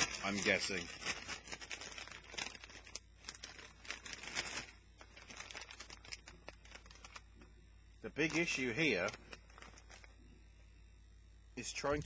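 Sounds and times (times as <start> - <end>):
crisp bag crinkling: 0.0 - 7.3, 8.2 - 10.2.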